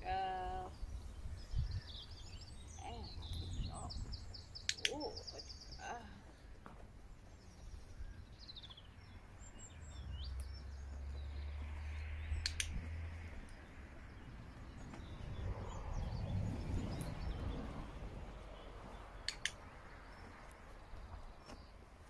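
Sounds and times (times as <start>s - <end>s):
small birds chirping: 0.0s - 22.0s
training clicker double clicks: 4.6s - 5.4s, 12.4s - 12.8s, 19.2s - 19.6s.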